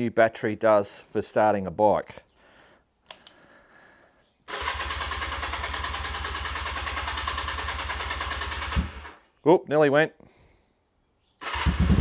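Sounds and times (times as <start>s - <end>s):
light click: 3.1s - 3.4s
motorcycle starter cranking engine: 4.5s - 9.2s, 11.4s - 12.0s.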